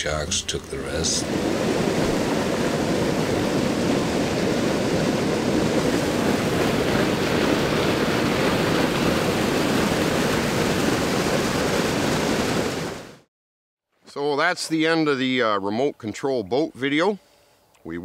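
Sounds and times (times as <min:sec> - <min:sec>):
water splashing over rocks: 0:01.2 - 0:13.1.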